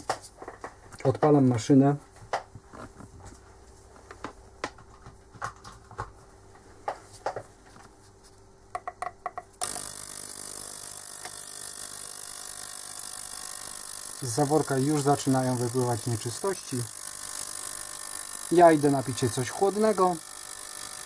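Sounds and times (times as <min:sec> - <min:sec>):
ultrasonic cleaner hissing hum: 0:09.6 - 0:21.0.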